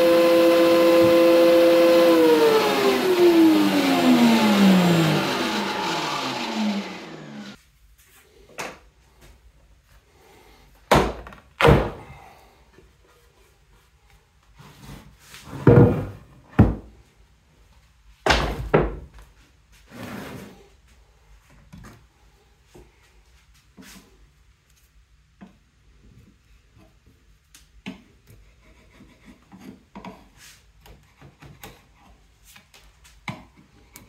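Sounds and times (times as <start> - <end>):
power tool motor spinning down: 0.0 - 7.6
wooden thunks and knocks: 15.6 - 16.9.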